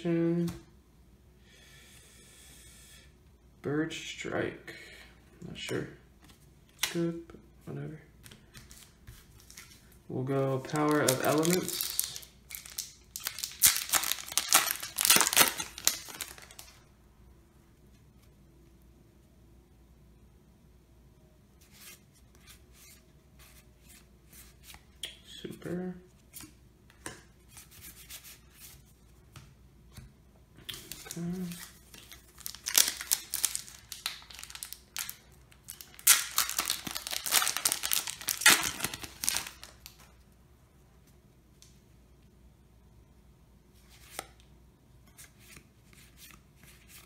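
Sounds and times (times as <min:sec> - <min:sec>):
foil wrapper tearing and crinkling: 0:10.7 - 0:16.8, 0:30.9 - 0:40.0.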